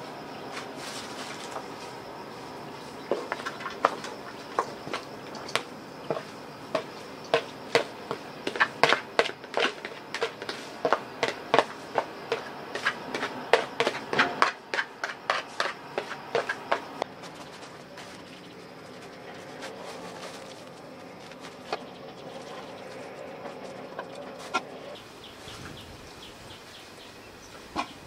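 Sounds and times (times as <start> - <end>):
spoon knocking plastic basin: 3.1 - 17.0.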